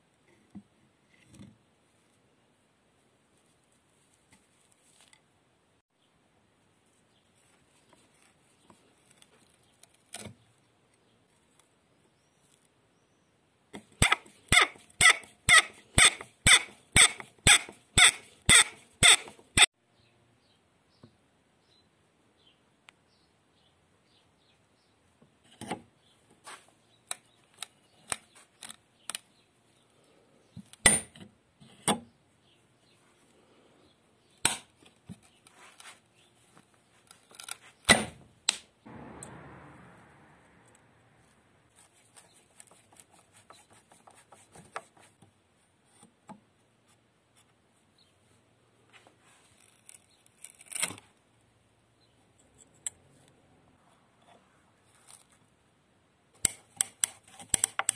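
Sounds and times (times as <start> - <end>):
metal on wood clicks and knocks: 56.4 - 57.9.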